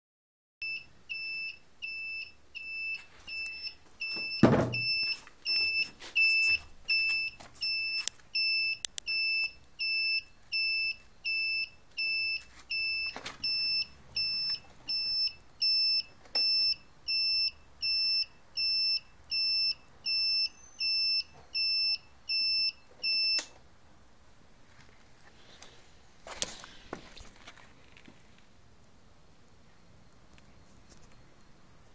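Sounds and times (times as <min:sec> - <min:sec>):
turn-signal beeper: 0:00.6 - 0:23.6
loud knock: 0:04.4 - 0:04.9.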